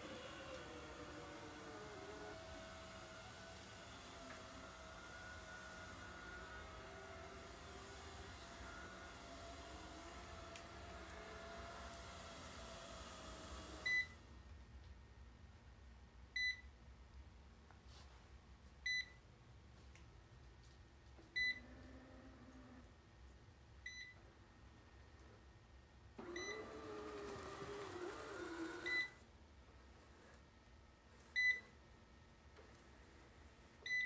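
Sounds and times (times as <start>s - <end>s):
robot vacuum motor hum: 0.0s - 13.9s, 26.2s - 29.0s
robot vacuum beeping: 0.0s - 14.1s, 26.2s - 29.2s.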